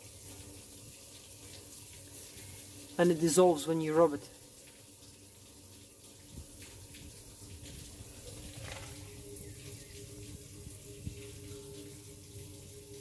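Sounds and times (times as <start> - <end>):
water trickling: 0.0 - 13.0.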